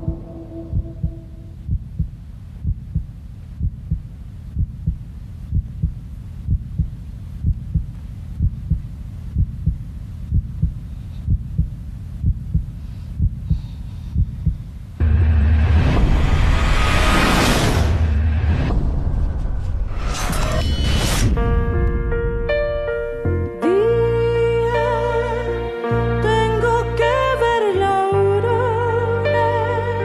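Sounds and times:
heartbeat thumps: 0.0s - 16.7s
steady low hum: 0.0s - 25.7s.

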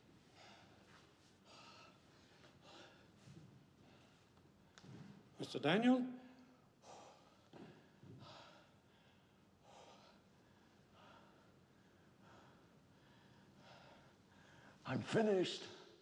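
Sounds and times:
man breathing heavily: 0.3s - 4.3s, 6.7s - 14.8s.

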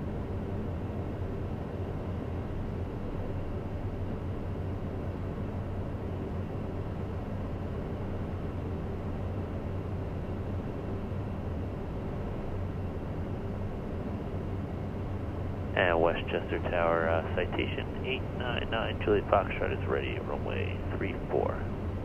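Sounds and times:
jet engine and airflow rush: 9.4s - 22.0s.

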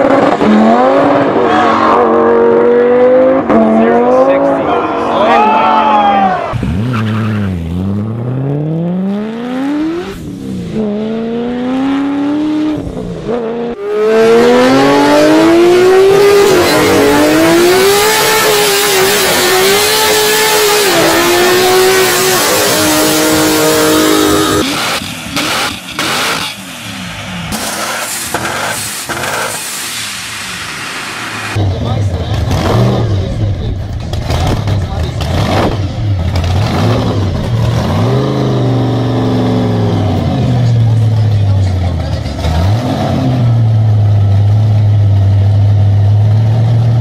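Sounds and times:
car engine accelerating hard: 0.0s - 29.6s, 31.4s - 47.0s
car engine revving high: 0.0s - 29.8s, 30.4s - 47.0s
broken-up engine with sharp cracks: 27.5s - 29.6s.

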